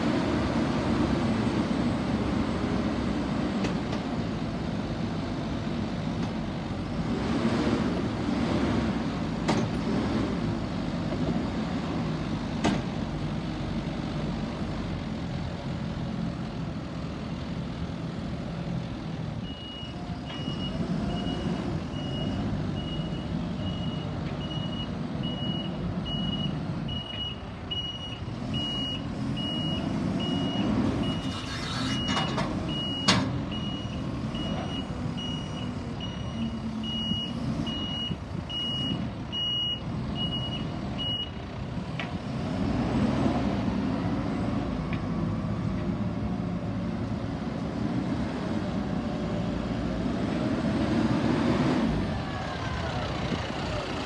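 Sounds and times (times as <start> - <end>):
diesel engine running: 0.0 - 54.0
reversing alarm beeping: 19.4 - 31.4, 32.0 - 41.4.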